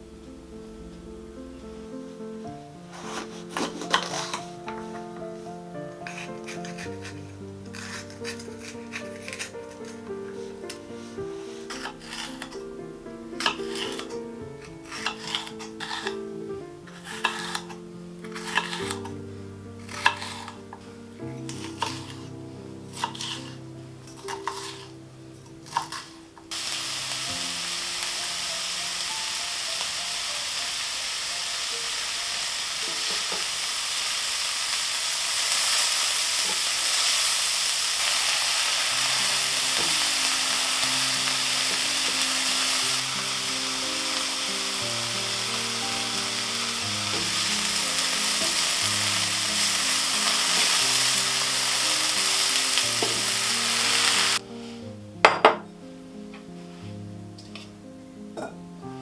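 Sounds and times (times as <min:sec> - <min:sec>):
vegetables sizzling in a pan: 0:02.6 - 0:19.2, 0:19.8 - 0:54.5
spatula stirring: 0:02.9 - 0:05.1, 0:06.0 - 0:10.8, 0:11.5 - 0:12.7, 0:13.4 - 0:16.2, 0:16.8 - 0:19.2, 0:19.8 - 0:26.6
knife chopping on wooden board: 0:17.1 - 0:17.7.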